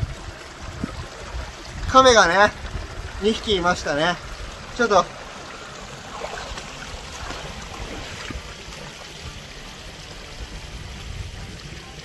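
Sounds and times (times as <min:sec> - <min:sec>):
water rushing in channel: 0:00.0 - 0:12.0.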